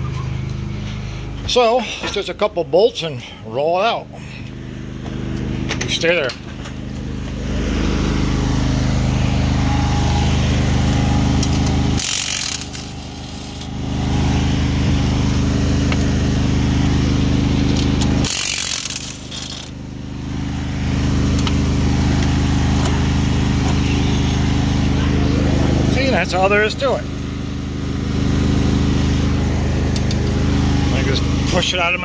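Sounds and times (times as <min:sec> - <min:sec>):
mower engine idling: 0:04.0 - 0:32.0
impact wrench rattling: 0:11.4 - 0:13.7, 0:17.7 - 0:19.7.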